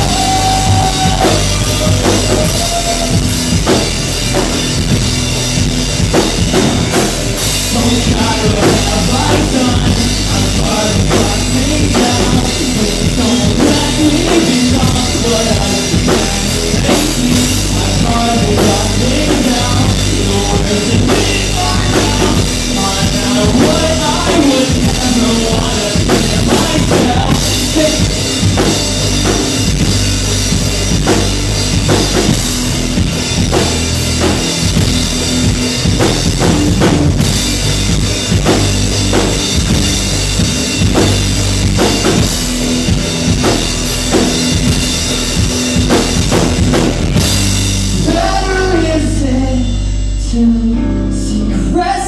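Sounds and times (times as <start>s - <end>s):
person singing: 0.0s - 3.4s, 7.6s - 28.7s, 47.9s - 52.0s
drum kit hitting: 0.0s - 50.4s
live rock band playing: 0.0s - 52.0s.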